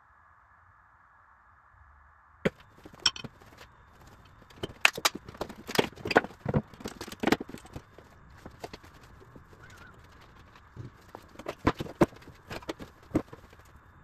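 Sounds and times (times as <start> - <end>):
wooden boards clattering on concrete: 2.5 - 13.6.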